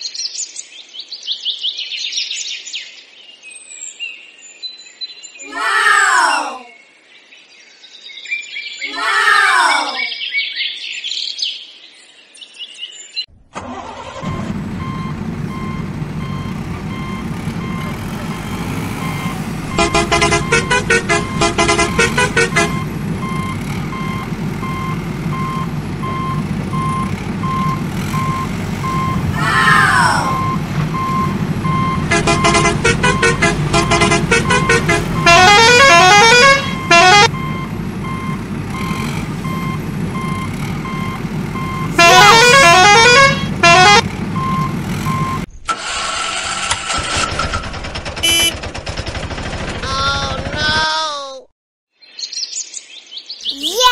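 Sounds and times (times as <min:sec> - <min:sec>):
falling-pitched electronic calls: 0:13.6 - 0:45.5, 0:48.2 - 0:48.5
electronic horn tones: 0:13.7 - 0:29.4, 0:30.3 - 0:45.5, 0:48.2 - 0:48.6
warbling siren-like tone: 0:26.2 - 0:44.0.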